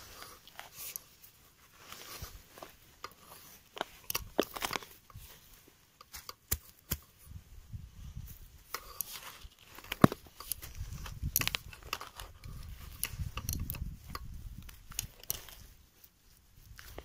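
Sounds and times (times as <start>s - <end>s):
shovel scraping through soil: 0.0s - 7.1s.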